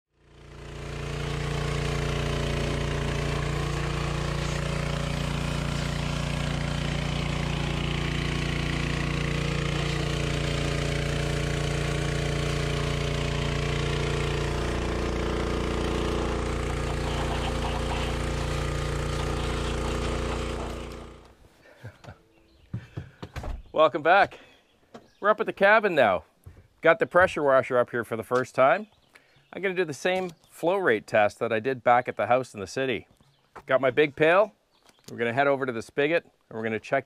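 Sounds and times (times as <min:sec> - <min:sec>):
pressure washer engine droning: 0:00.1 - 0:21.4
high-pressure water jet hissing: 0:01.2 - 0:15.1, 0:15.9 - 0:21.2.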